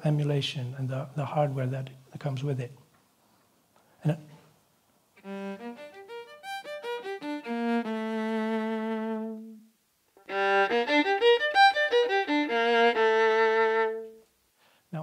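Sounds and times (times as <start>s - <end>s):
electric violin phrase: 5.2s - 9.6s, 10.2s - 14.2s.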